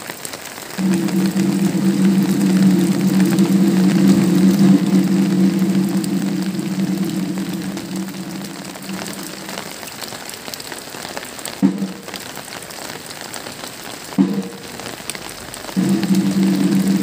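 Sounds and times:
heavy rain on pavement: 0:00.0 - 0:17.0
low steady hum: 0:00.8 - 0:09.9, 0:15.8 - 0:17.0.

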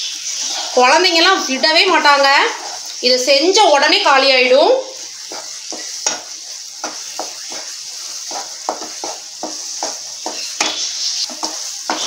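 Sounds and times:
ghee sizzling in pan: 0:00.0 - 0:12.0
spatula scraping frying pan: 0:00.0 - 0:12.0.

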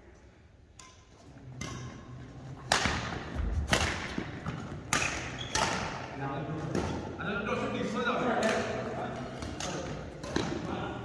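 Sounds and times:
rackets striking shuttlecock: 0:00.7 - 0:06.1, 0:08.4 - 0:10.7.

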